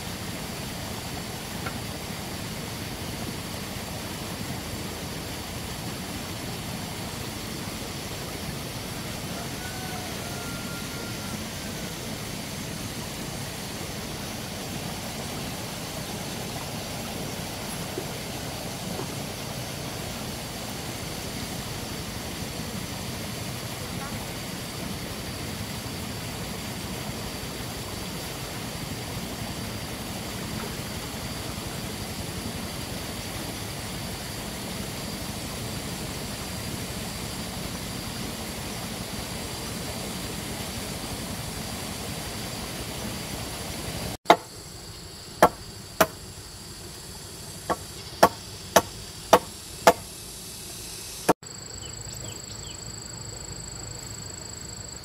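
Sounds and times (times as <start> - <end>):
high insect drone: 0.0 - 55.0
hard tool strikes: 44.3 - 44.5, 45.4 - 46.2, 47.7 - 50.1.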